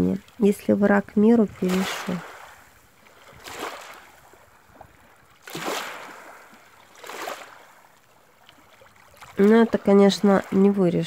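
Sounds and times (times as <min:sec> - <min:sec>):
surf washing onto sandy beach: 0:01.6 - 0:07.8.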